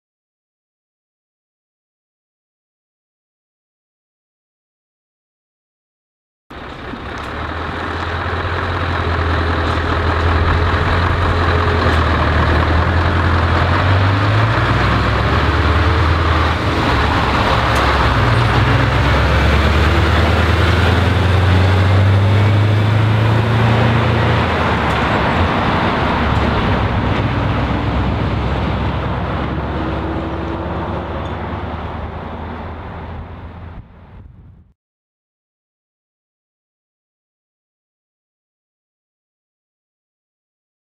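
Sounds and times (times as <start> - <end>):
diesel truck passing: 6.5 - 34.7.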